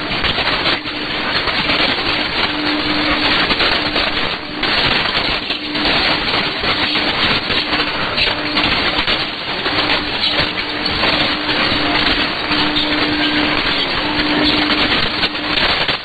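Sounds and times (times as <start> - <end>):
radio static hiss: 0.0 - 16.0.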